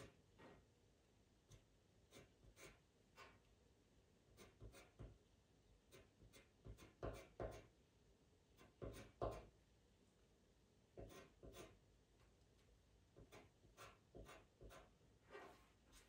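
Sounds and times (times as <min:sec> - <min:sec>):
pencil scratching on paper: 0:02.1 - 0:03.5, 0:04.3 - 0:05.2, 0:05.9 - 0:07.7, 0:08.6 - 0:09.5, 0:11.0 - 0:11.8, 0:13.2 - 0:16.0.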